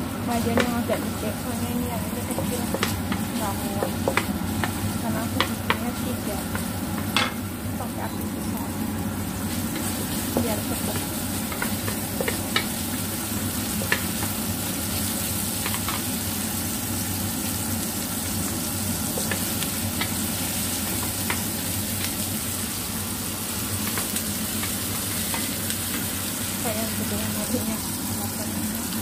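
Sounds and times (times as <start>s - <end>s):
food sizzling in hot oil: 0.0s - 29.0s
spatula knocking and scraping pan: 2.2s - 7.4s, 9.7s - 12.7s.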